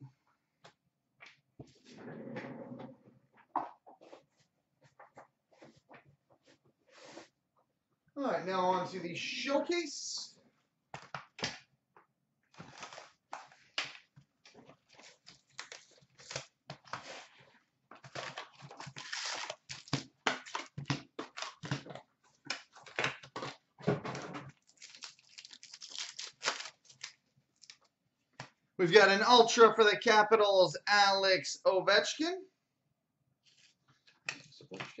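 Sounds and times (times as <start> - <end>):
foil pack ripped and crinkled: 18.1 - 20.1, 24.6 - 27.8.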